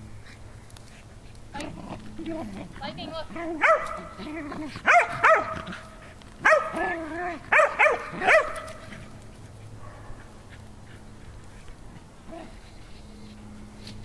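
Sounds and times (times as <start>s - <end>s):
dogs barking: 3.4s - 4.2s, 4.8s - 5.8s, 6.4s - 8.9s.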